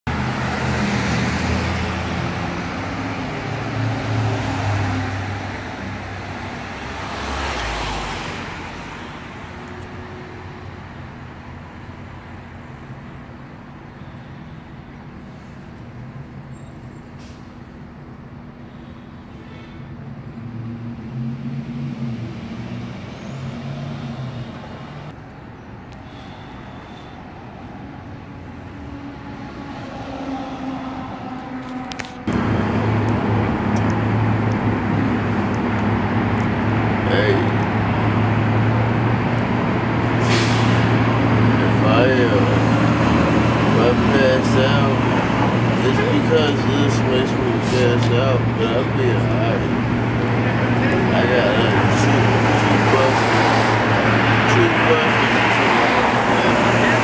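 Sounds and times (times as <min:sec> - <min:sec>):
vehicles going by: 0:00.0 - 0:57.0
vehicle passing close: 0:00.1 - 0:10.2, 0:28.2 - 0:57.0
heavy engine humming: 0:00.1 - 0:57.0.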